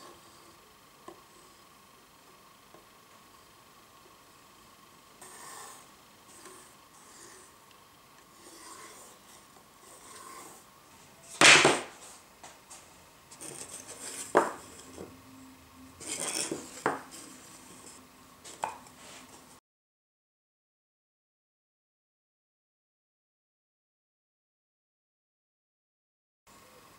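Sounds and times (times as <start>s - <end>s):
compass scratching wood: 0.0s - 2.9s, 5.2s - 19.5s
loud scrape: 5.2s - 7.6s, 8.3s - 12.2s, 13.3s - 15.2s, 16.0s - 19.4s
rubbing: 5.2s - 7.6s, 8.3s - 10.7s
wooden pieces knocking: 11.4s - 12.0s, 13.4s - 15.1s, 16.0s - 17.2s.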